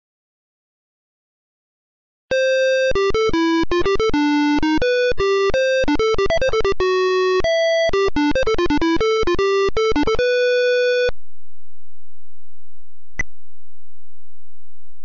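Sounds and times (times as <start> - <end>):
synthesized melody notes: 2.3 - 11.1.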